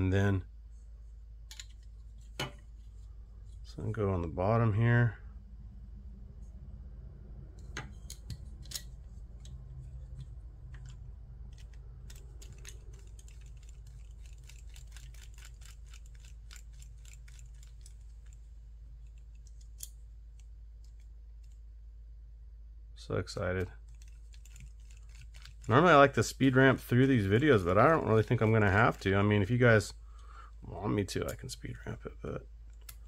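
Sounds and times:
low steady hum: 0.0s - 33.0s
small screws clicking: 8.0s - 18.4s, 23.8s - 25.7s.

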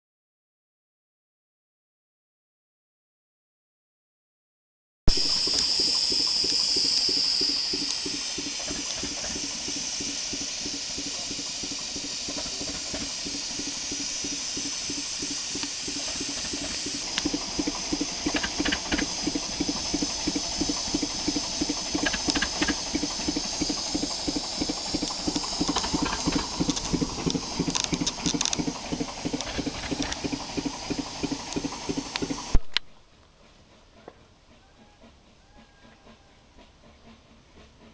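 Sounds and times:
steam hissing: 5.1s - 32.6s
steam locomotive chugging: 5.1s - 37.9s.

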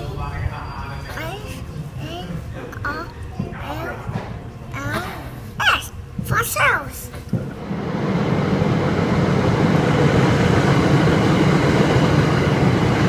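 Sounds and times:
train wheels rumbling on rail: 7.1s - 13.0s.

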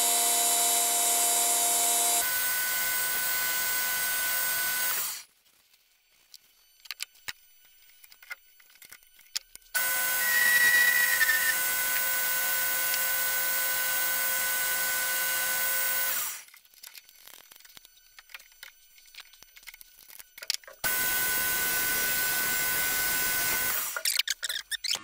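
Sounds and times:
tools clicking: 6.8s - 9.7s, 16.4s - 20.8s, 23.8s - 25.0s
lathe whining: 8.0s - 25.0s
lathe squeal: 9.8s - 12.0s.

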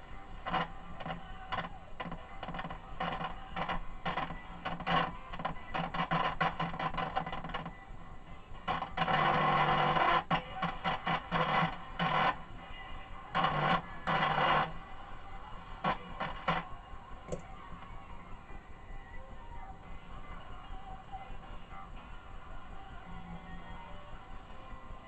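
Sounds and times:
radio speaker cutting in and out: 0.4s - 7.8s, 8.6s - 18.0s.

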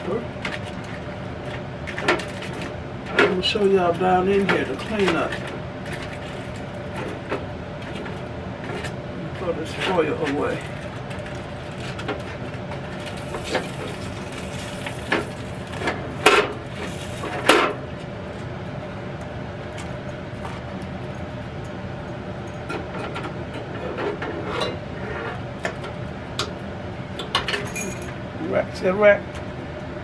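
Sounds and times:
foil crumpling: 12.9s - 15.8s.

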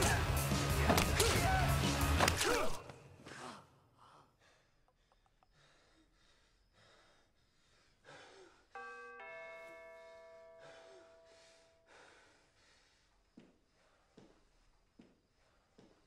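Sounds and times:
man breathing heavily: 3.2s - 8.8s, 10.4s - 16.0s
two-note doorbell chime: 8.8s - 11.9s.

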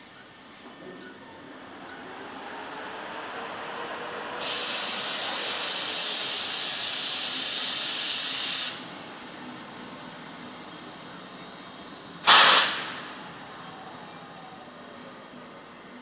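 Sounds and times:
compressed air hissing: 4.4s - 8.9s, 12.2s - 12.9s.

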